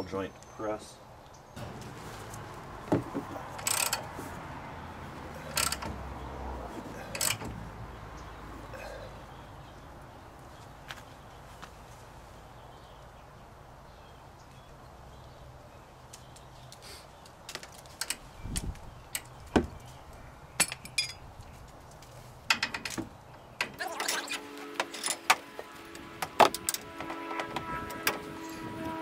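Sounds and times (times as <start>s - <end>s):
metal clinks and knocks: 2.9s - 4.1s, 5.4s - 6.0s, 6.9s - 7.7s, 20.6s - 21.2s, 22.5s - 25.4s.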